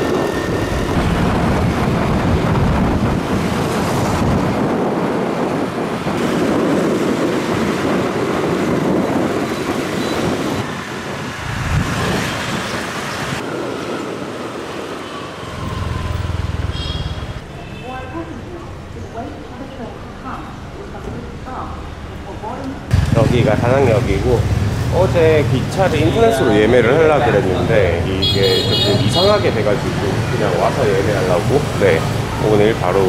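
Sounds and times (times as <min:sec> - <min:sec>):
wind on microphone: 0:00.0 - 0:17.4
motorbike rumble in traffic: 0:22.9 - 0:26.7.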